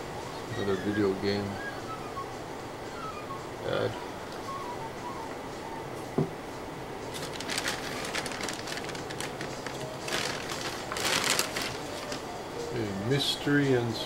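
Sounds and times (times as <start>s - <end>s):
plastic bag rustling: 7.1s - 12.5s.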